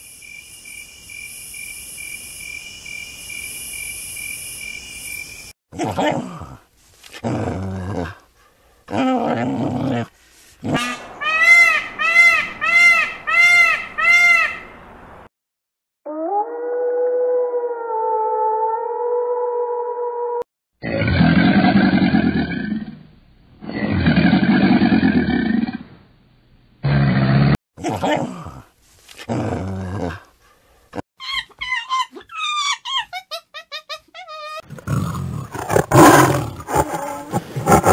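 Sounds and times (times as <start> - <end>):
peacock calling: 10.8 - 14.7
crocodile deep growl: 20.8 - 23.0.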